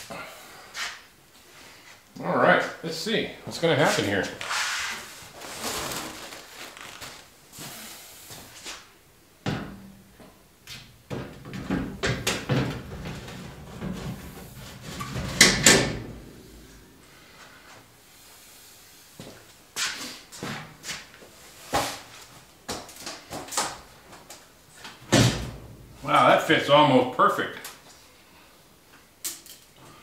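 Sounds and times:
metal clunks and scrapes: 11.2s - 16.8s.

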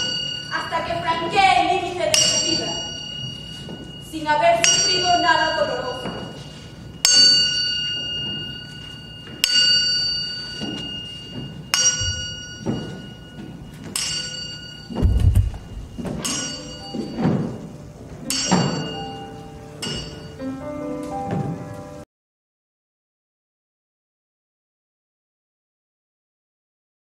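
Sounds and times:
bell-like metal instrument ringing: 0.0s - 20.6s
low drum thuds: 14.9s - 16.3s.

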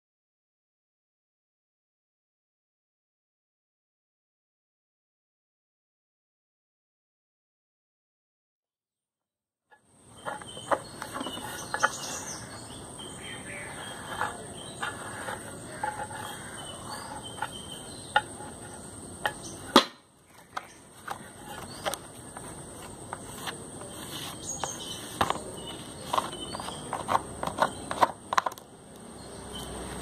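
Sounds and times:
tile tapping and scraping on leaf: 10.1s - 28.7s.

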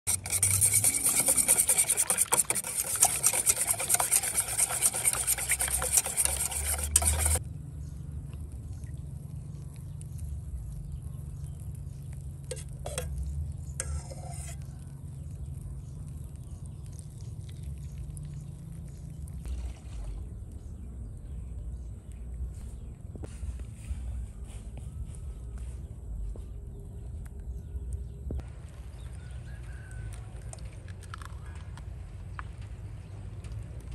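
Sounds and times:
cooking crackling and sizzling: 0.1s - 7.4s.

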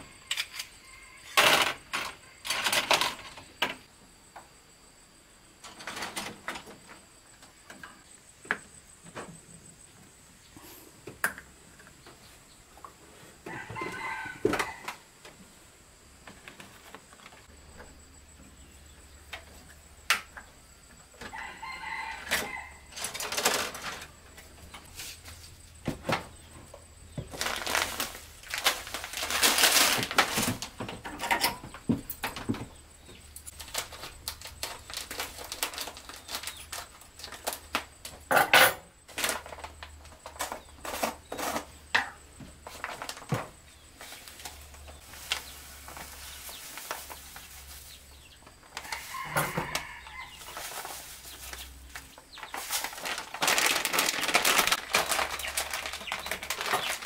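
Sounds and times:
rustling: 27.2s - 31.1s, 33.5s - 38.2s, 42.6s - 57.0s
kitchen utensils clattering: 29.1s - 31.7s
chickens calling: 43.9s - 57.0s.

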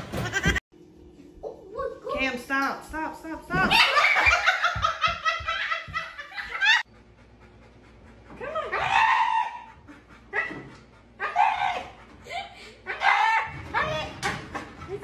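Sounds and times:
person laughing hard: 3.7s - 6.8s.

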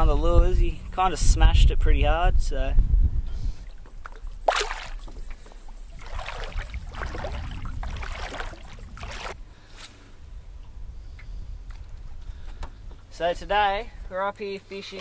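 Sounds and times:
water splashing beside a boat: 3.6s - 9.4s.

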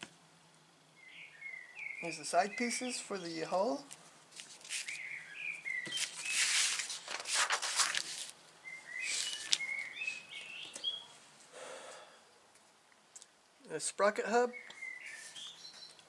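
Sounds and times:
songbird whistling: 1.0s - 2.7s, 4.8s - 6.5s, 8.6s - 11.1s, 14.5s - 16.0s
paper pages turning: 3.9s - 5.0s, 5.8s - 8.4s, 9.0s - 9.8s.

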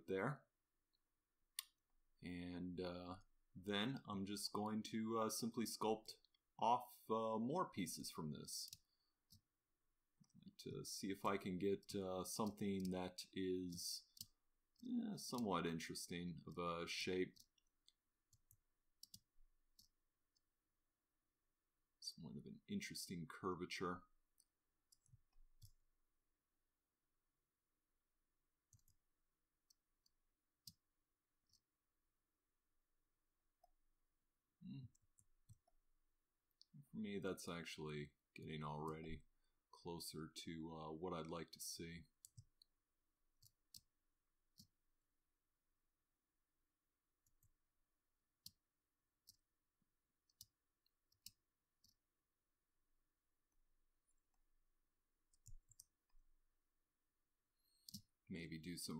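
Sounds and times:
computer mouse and keyboard clicks: 57.6s - 58.1s.

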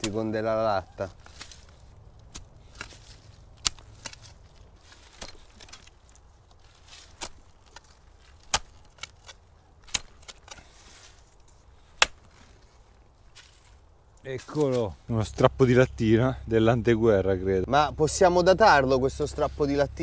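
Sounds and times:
spade chopping into soil: 1.2s - 6.0s, 6.8s - 10.8s, 11.8s - 12.4s.

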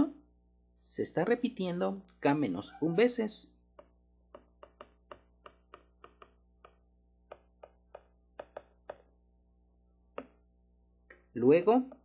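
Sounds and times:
low steady hum: 0.0s - 12.0s
stylus tapping on tablet screen: 3.7s - 9.2s, 10.0s - 11.3s.

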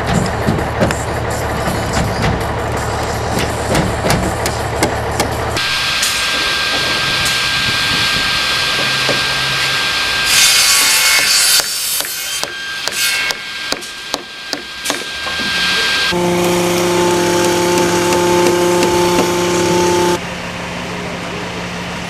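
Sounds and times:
sharp knocks: 3.3s - 5.4s
table saw whining: 5.6s - 20.2s
saw cutting wooden board: 6.3s - 20.2s.

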